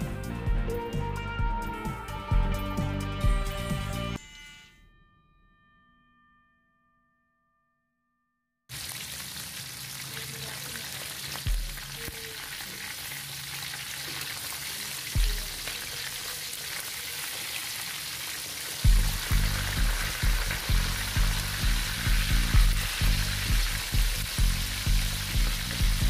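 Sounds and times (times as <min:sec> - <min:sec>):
fish sizzling in hot oil: 0:08.7 - 0:26.0.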